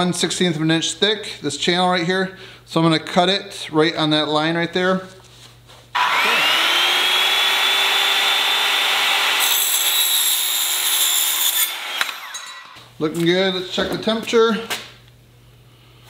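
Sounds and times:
circular saw whining: 0:06.0 - 0:12.8
saw cutting metal ringing: 0:06.0 - 0:12.8.

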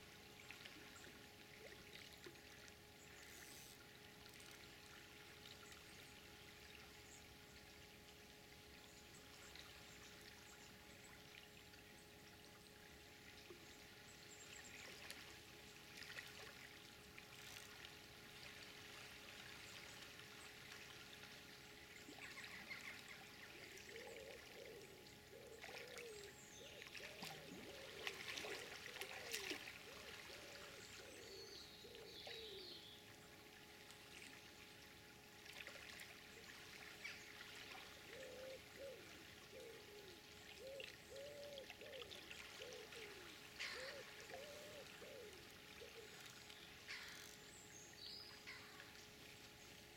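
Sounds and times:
faint river water flowing: 0:00.0 - 0:49.9
faint short bird calls: 0:39.6 - 0:47.4.

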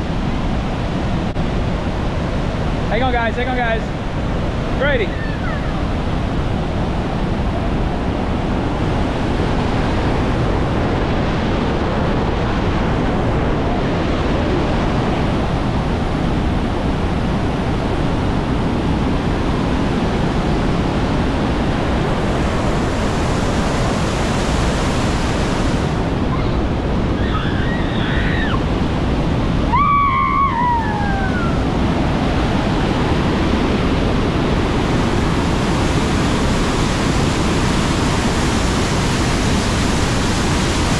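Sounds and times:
waterfall roaring: 0:00.0 - 0:40.9
faint voice cries: 0:05.0 - 0:05.8.

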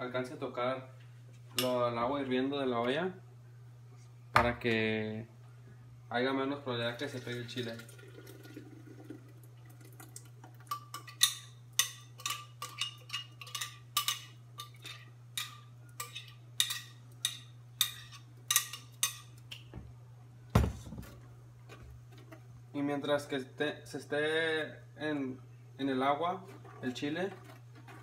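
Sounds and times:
steady low hum: 0:00.0 - 0:07.1.

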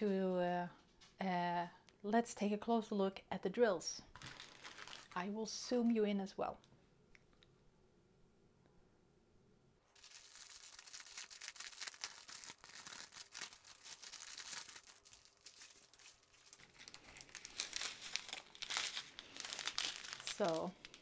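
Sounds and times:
plastic bag crinkling: 0:04.1 - 0:05.3, 0:10.0 - 0:21.0.

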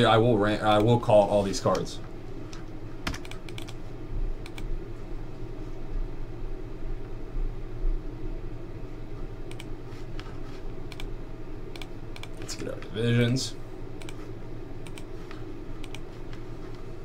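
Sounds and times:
steady low hum: 0:00.0 - 0:17.0
computer mouse clicks: 0:03.1 - 0:03.8, 0:04.4 - 0:04.7, 0:09.5 - 0:09.7, 0:10.9 - 0:11.1, 0:11.7 - 0:12.5, 0:14.0 - 0:14.2, 0:14.8 - 0:16.4.

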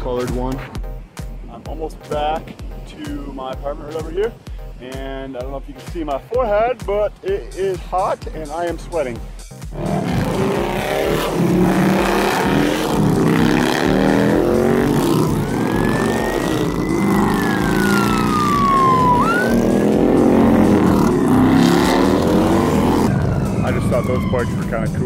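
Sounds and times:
motorcycles riding past: 0:09.7 - 0:25.0
emergency vehicle siren: 0:10.4 - 0:25.0.

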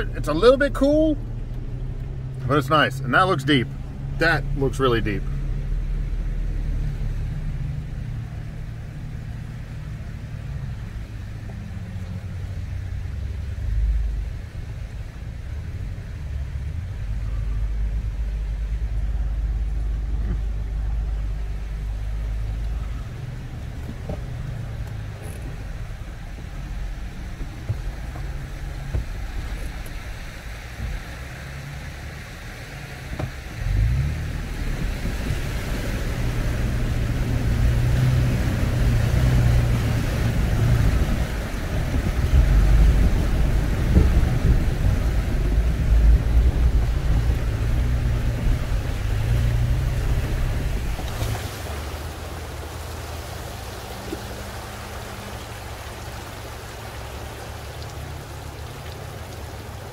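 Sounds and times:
car engine running: 0:00.0 - 0:59.9
water rushing against vehicle: 0:00.0 - 0:59.9
engine revving: 0:33.2 - 0:57.3.

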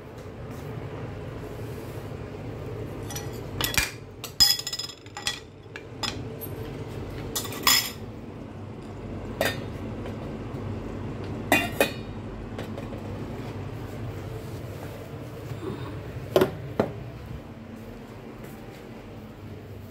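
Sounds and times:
steady low hum: 0:00.0 - 0:19.9
kitchenware clinks and knocks: 0:03.0 - 0:06.2, 0:07.3 - 0:08.0.

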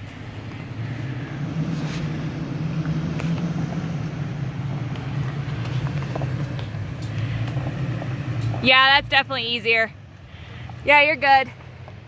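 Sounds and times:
truck engine running low: 0:00.0 - 0:12.0
stones clicking under tyres: 0:02.8 - 0:08.8, 0:11.5 - 0:12.0.

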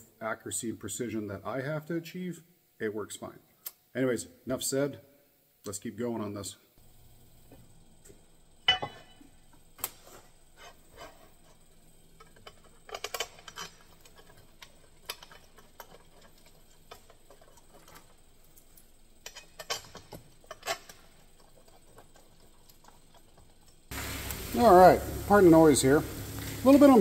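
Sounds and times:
metal studs clicking and clinking: 0:12.2 - 0:23.8.

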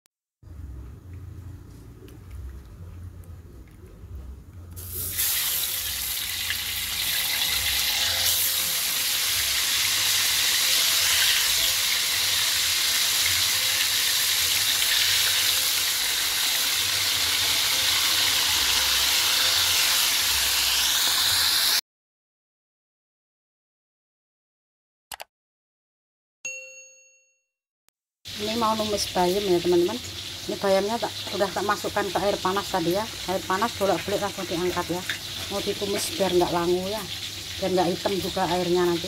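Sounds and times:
fish sizzling in hot oil: 0:04.8 - 0:21.8, 0:28.3 - 0:39.0.

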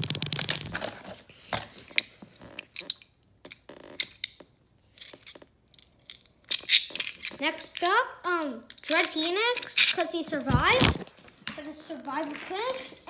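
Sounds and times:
small plastic pieces clicking: 0:05.0 - 0:10.1.

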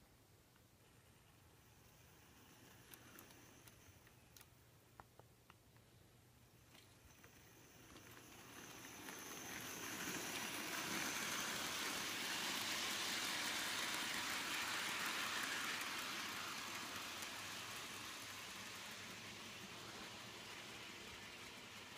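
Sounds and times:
model train wheels rattling: 0:01.0 - 0:04.5, 0:06.6 - 0:21.9
motor whirring: 0:07.1 - 0:21.9.

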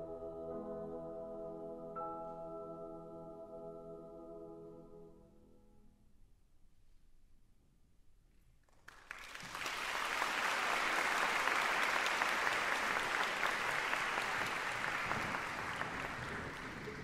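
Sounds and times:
audience applauding: 0:08.8 - 0:17.0.

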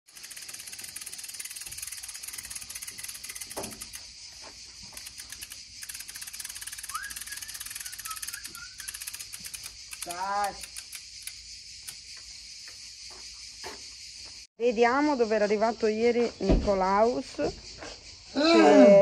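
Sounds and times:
chorus of chirping insects: 0:00.1 - 0:19.0
rising whistle-like call: 0:06.7 - 0:09.2.

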